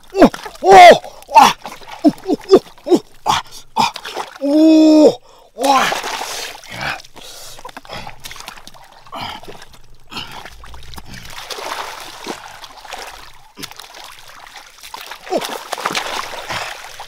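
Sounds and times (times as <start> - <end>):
trickling water: 0.0 - 17.0
water splashing: 0.0 - 17.0
hands digging in wet mud: 5.6 - 17.0.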